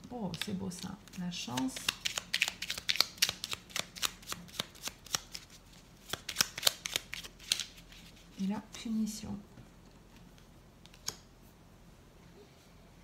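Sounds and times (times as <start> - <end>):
cards being shuffled: 0.3 - 8.4, 10.1 - 11.3.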